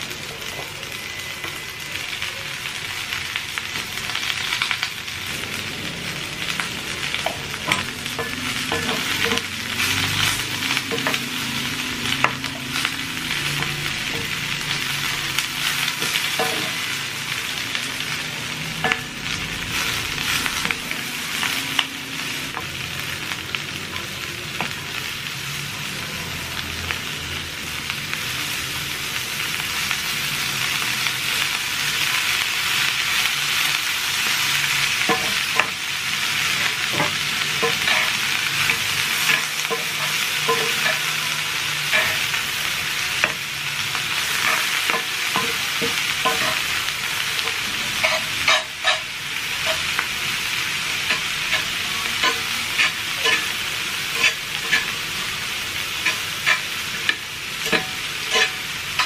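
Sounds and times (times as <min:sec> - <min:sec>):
vegetables sizzling in a skillet: 0:00.0 - 0:59.0
utensils clicking against pan: 0:07.2 - 0:17.0, 0:36.5 - 0:42.5, 0:44.2 - 0:46.8, 0:47.4 - 0:50.1, 0:50.9 - 0:59.0.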